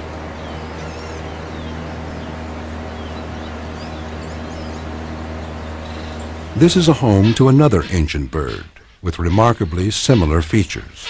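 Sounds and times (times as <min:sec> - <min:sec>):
boat motor droning: 0:00.0 - 0:08.6
small birds chirping: 0:00.0 - 0:11.0.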